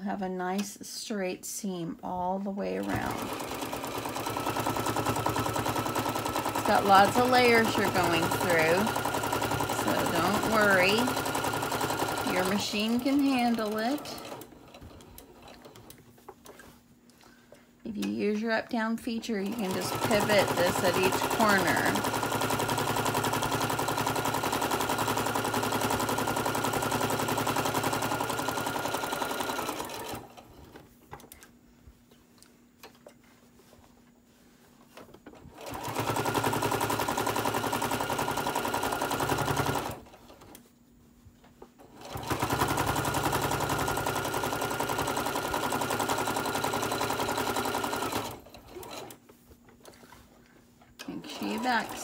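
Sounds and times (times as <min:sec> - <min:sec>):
electric sewing machine stitching: 0:02.8 - 0:16.0, 0:19.4 - 0:30.5, 0:35.5 - 0:40.6, 0:41.9 - 0:49.2, 0:51.0 - 0:52.0.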